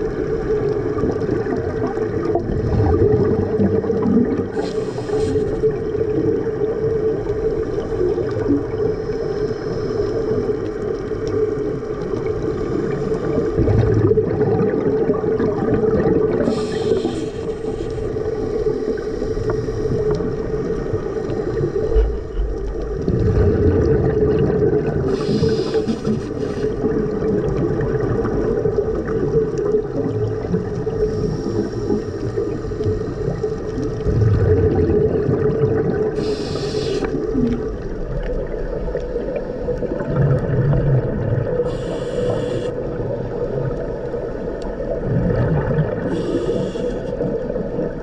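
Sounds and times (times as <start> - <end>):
underwater bubbles gurgling: 0.0 - 48.0
regulator air hiss: 4.6 - 5.8, 16.4 - 20.2, 25.1 - 26.8, 36.2 - 37.3, 41.6 - 42.9, 46.1 - 47.2.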